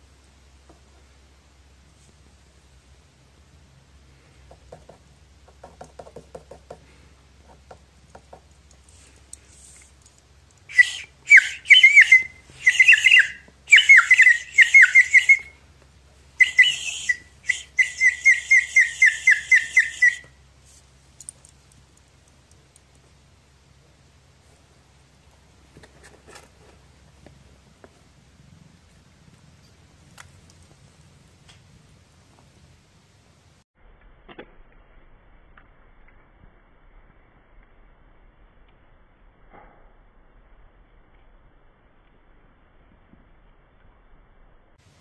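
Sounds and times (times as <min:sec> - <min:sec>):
toy bird whistle trilling: 0:10.7 - 0:15.6, 0:16.4 - 0:20.3.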